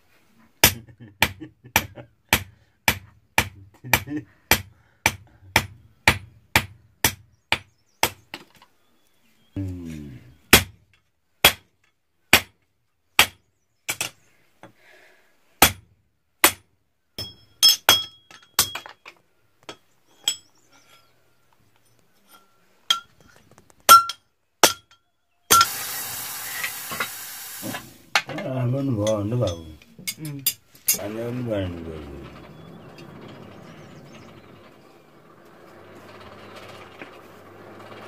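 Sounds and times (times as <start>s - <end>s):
hammer striking metal on anvil: 23.9s - 25.8s
hot metal hissing in water: 25.5s - 28.1s.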